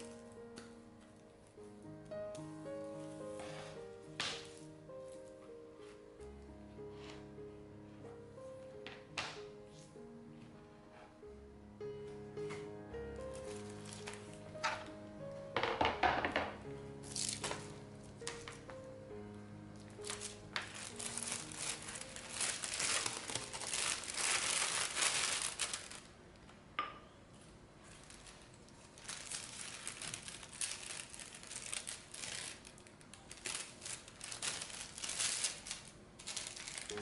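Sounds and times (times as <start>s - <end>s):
plastic bag crinkling: 0.0s - 0.3s, 13.2s - 15.0s, 17.1s - 18.7s, 19.8s - 26.2s, 27.8s - 37.0s
background music: 0.0s - 25.7s, 36.4s - 37.0s.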